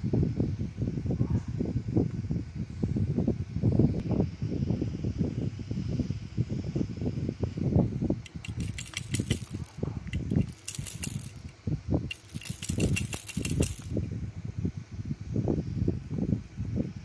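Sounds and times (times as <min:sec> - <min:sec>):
toy rattle shaken: 0:08.2 - 0:11.5, 0:12.1 - 0:14.0.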